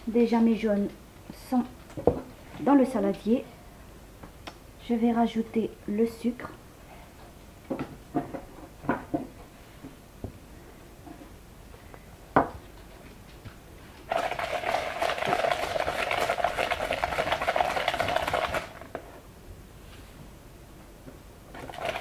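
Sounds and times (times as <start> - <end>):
wire whisk beating in plastic bowl: 14.1 - 18.8, 21.6 - 22.0.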